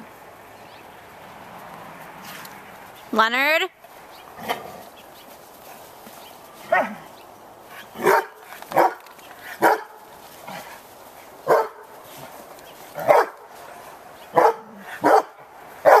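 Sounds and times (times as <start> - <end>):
dog barking: 8.0 - 9.0, 9.6 - 10.0, 11.4 - 11.8, 13.0 - 13.4, 14.3 - 16.0.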